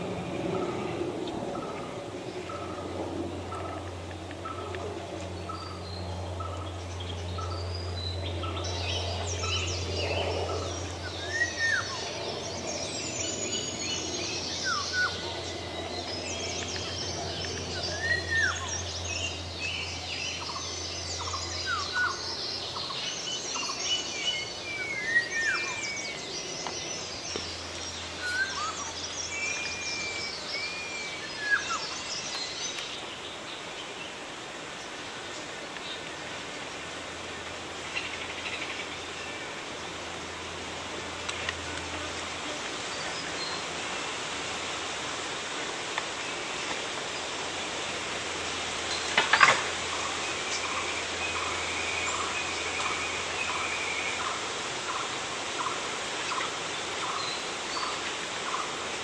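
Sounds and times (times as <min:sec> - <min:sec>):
steady low hum: 0:00.0 - 0:32.3
wild birds chorus: 0:00.0 - 0:59.0.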